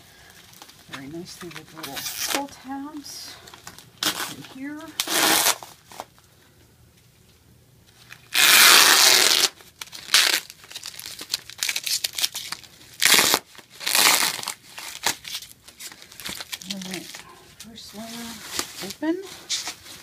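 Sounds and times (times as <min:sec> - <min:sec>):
bubble wrap crinkling: 0:00.2 - 0:06.2, 0:07.9 - 0:20.0
packing tape ripping: 0:01.4 - 0:02.5, 0:03.5 - 0:06.1, 0:08.0 - 0:17.2.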